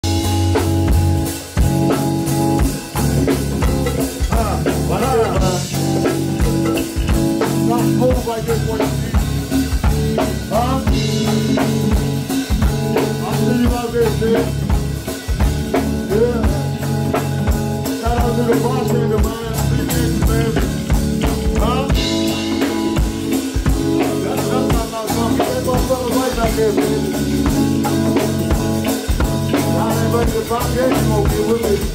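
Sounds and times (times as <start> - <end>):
drum kit beat: 0.0 - 31.9
live band music: 0.0 - 31.9
people singing into microphones: 4.0 - 6.8, 18.0 - 23.0, 23.8 - 28.2.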